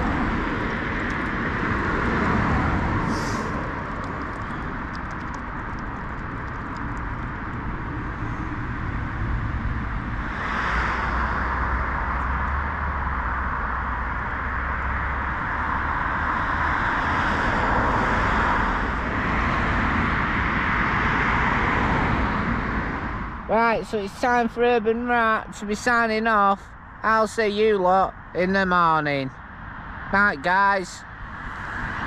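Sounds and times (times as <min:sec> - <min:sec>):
low traffic rumble: 0:00.0 - 0:32.0
passing cars rushing: 0:00.0 - 0:32.0.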